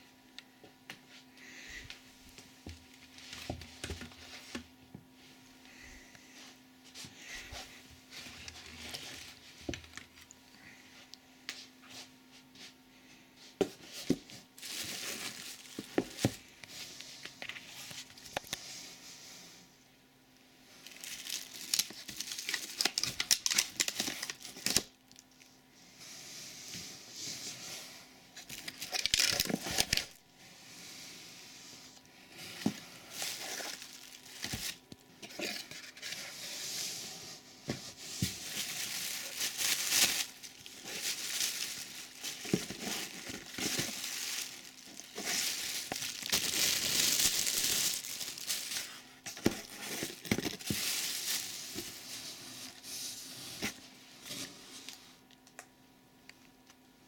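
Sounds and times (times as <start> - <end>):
plastic bags crinkling: 14.5 - 16.7, 20.8 - 25.3, 28.4 - 30.2, 32.5 - 36.2, 38.2 - 52.8.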